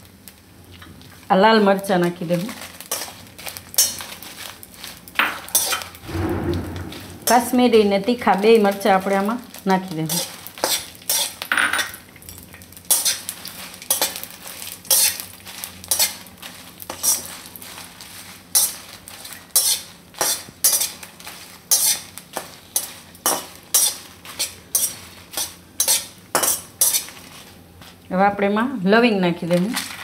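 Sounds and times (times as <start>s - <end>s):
oil sizzling: 0.0s - 28.0s
metal spatula scraping metal pan: 5.5s - 5.9s, 10.1s - 11.4s, 19.5s - 21.0s, 21.7s - 22.0s, 22.8s - 27.2s.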